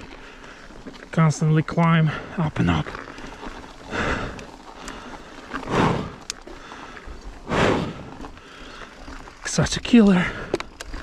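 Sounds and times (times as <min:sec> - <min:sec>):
heavy exhalations: 0:03.0 - 0:09.2.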